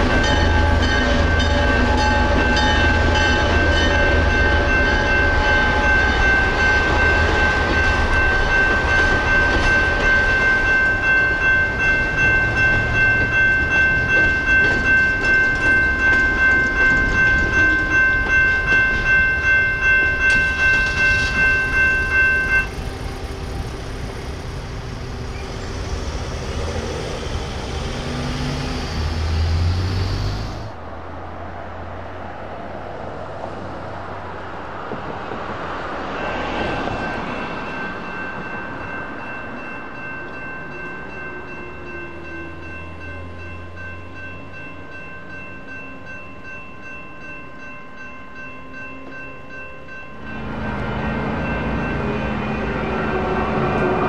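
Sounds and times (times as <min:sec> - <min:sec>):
electronic crossing bell ringing: 0:00.0 - 0:25.7, 0:37.0 - 0:53.6
road noise: 0:00.0 - 0:54.0
train rumble and wheel clatter: 0:00.0 - 0:54.0.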